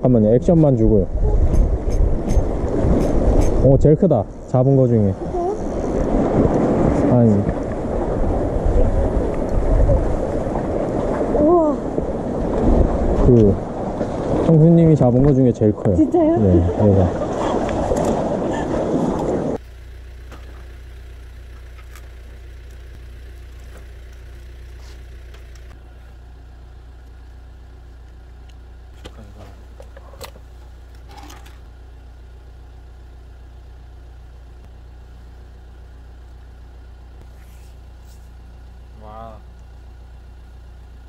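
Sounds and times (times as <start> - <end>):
engine idling: 19.6 - 41.0.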